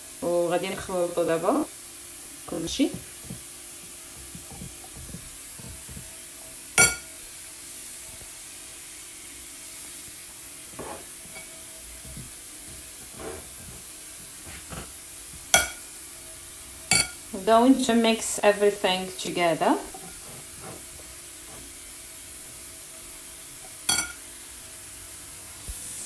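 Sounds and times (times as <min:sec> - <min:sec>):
spoon scraping glass bowl: 0:04.1 - 0:06.1, 0:10.7 - 0:15.9, 0:19.8 - 0:21.7, 0:23.6 - 0:24.2
spoon clinking on glass: 0:06.8 - 0:07.1, 0:11.3 - 0:11.6, 0:15.5 - 0:15.9, 0:16.9 - 0:17.2, 0:23.6 - 0:24.2.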